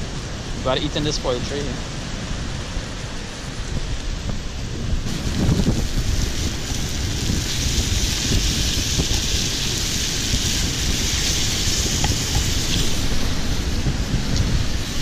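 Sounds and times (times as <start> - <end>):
fish sizzling in pan: 5.1 - 13.8.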